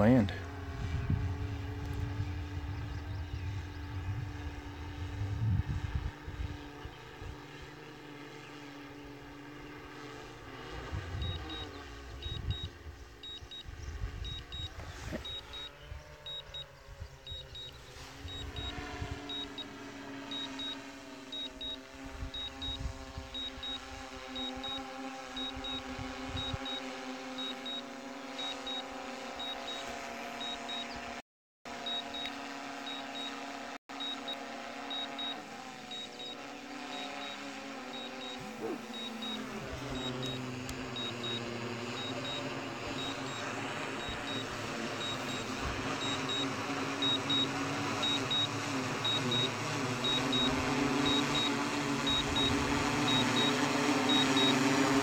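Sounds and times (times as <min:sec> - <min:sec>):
drone propellers humming: 0:00.0 - 0:55.0
high double beep: 0:38.0 - 0:41.4.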